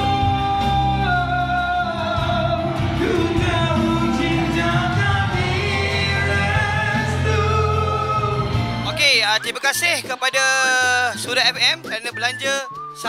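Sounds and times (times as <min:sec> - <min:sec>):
person singing into microphone: 0:00.0 - 0:08.7
backing music with bass line: 0:00.0 - 0:13.0.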